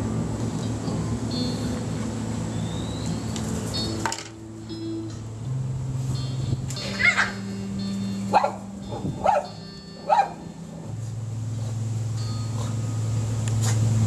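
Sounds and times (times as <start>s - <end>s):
small dog barking: 6.9s - 7.4s, 8.3s - 8.6s, 9.2s - 10.4s.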